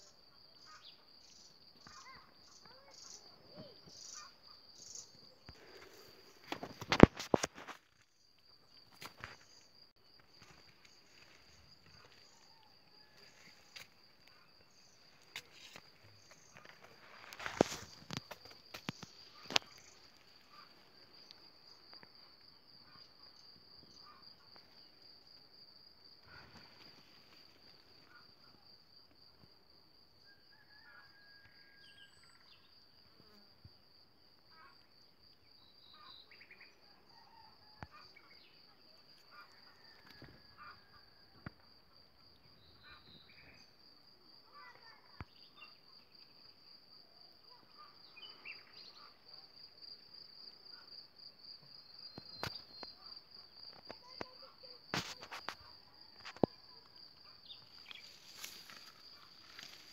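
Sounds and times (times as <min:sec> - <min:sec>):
insects trilling: 0:00.0 - 0:59.9
sharp clicks and rustles: 0:06.4 - 0:08.0.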